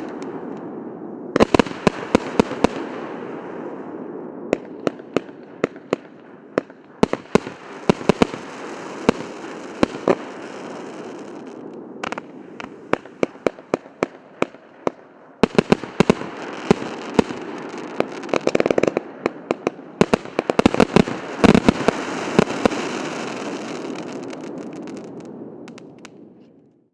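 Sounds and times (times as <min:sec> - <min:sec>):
fireworks crackling hiss: 0:00.0 - 0:00.7, 0:06.6 - 0:26.2
fireworks bangs: 0:00.0 - 0:26.6.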